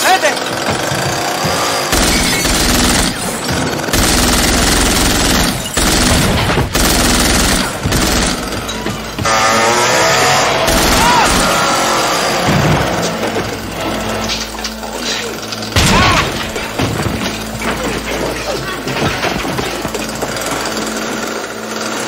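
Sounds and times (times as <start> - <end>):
dramatic film score: 0.0 - 22.0
gunfire bursts: 1.2 - 13.0
glass shattering: 1.9 - 9.8, 12.4 - 21.0.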